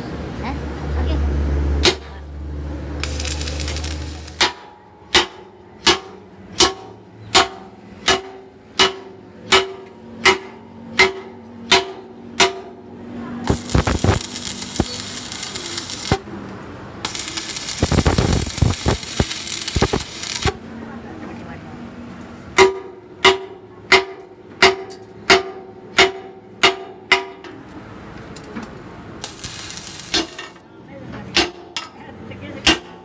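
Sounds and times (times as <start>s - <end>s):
welding arc crackling hiss: 3.0s - 4.5s, 13.5s - 16.2s, 17.0s - 20.6s, 29.2s - 30.6s.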